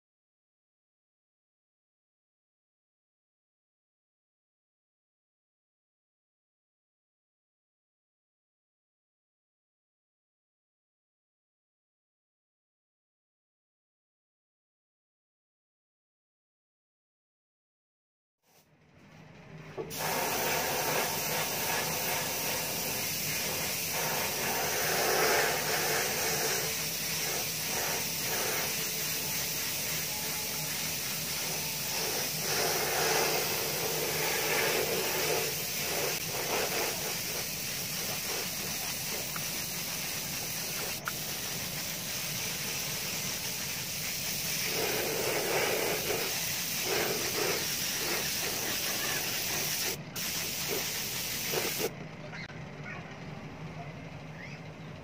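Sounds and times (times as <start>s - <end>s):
paint spray gun hissing: 19.9s - 51.9s.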